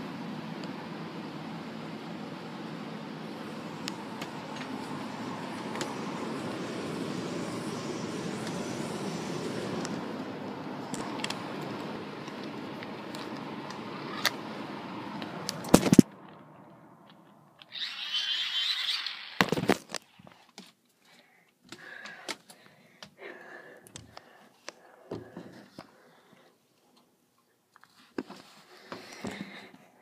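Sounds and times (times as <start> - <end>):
air conditioner rumbling: 0.0 - 17.6.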